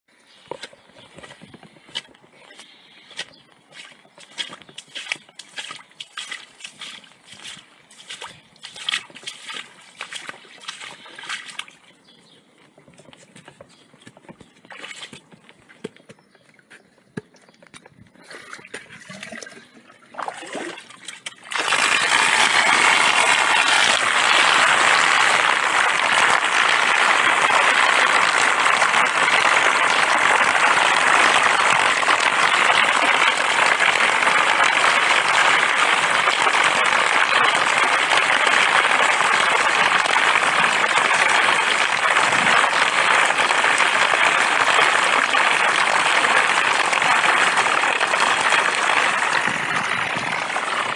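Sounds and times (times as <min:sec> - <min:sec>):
boots splashing through water: 0:00.5 - 0:12.2, 0:12.9 - 0:16.4
water rushing down a drain: 0:18.2 - 0:50.9.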